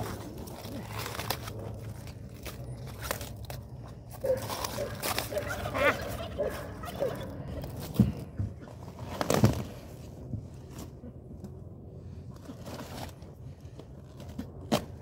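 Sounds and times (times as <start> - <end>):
leaves rustling and crunching: 0.0 - 7.9.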